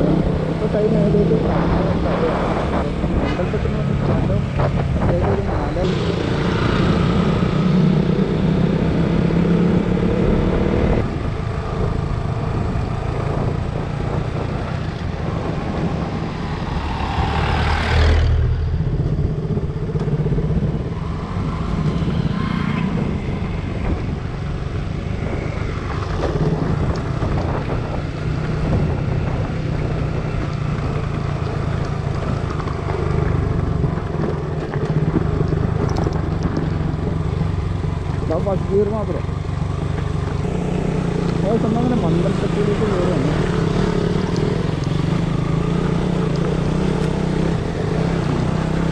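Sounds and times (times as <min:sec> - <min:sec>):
road noise: 0:00.0 - 0:48.9
wind noise: 0:00.0 - 0:48.9
motorcycle engine running: 0:18.1 - 0:48.9.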